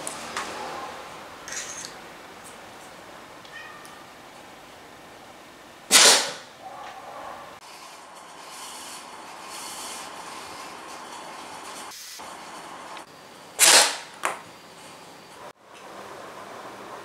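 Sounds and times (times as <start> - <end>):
blowgun puff: 5.9 - 6.4, 13.6 - 14.0.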